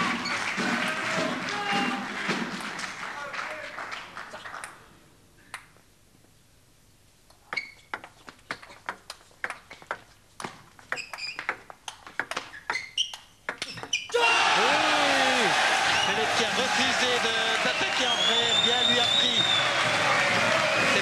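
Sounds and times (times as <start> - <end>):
hall noise: 14.2 - 21.0.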